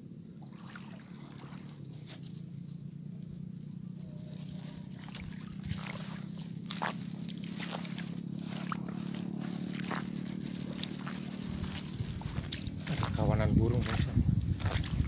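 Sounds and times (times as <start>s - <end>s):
water splashes: 0.4s - 2.2s, 4.9s - 15.0s
footsteps sloshing through water: 0.4s - 15.0s
steady low rumble: 1.7s - 15.0s.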